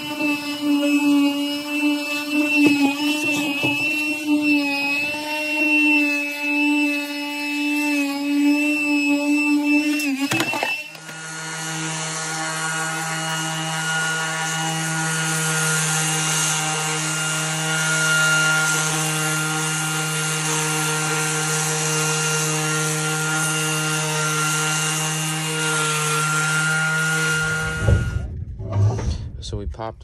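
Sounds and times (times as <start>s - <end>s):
orbital sander on metal: 0.0s - 28.4s.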